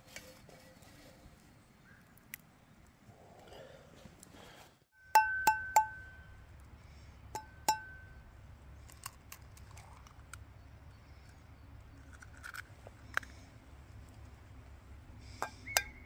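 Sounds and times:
utensil clinking against cookware: 0:05.2 - 0:06.0.

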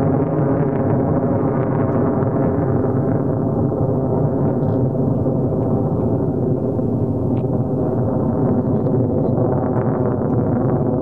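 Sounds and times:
jet engine roaring: 0:00.0 - 0:11.0.

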